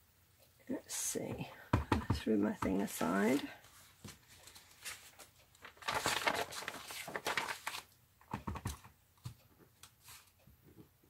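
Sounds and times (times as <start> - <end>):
paper rustling: 2.9 - 8.9.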